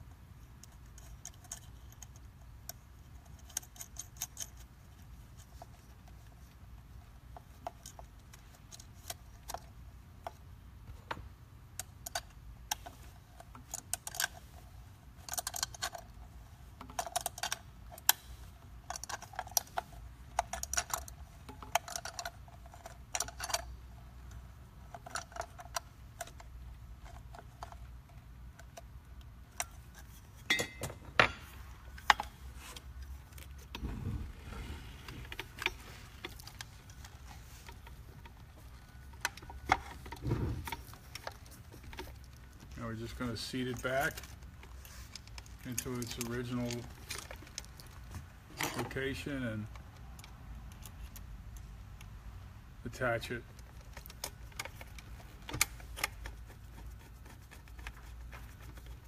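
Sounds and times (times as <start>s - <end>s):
low steady hum: 0.0s - 59.0s
metal parts clinking on handle: 29.5s - 32.4s.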